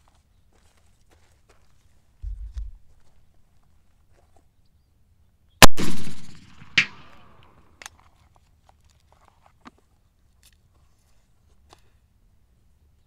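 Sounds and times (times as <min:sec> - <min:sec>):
rifle shot crack: 0:05.6 - 0:07.6
sharp crack: 0:05.6 - 0:07.7.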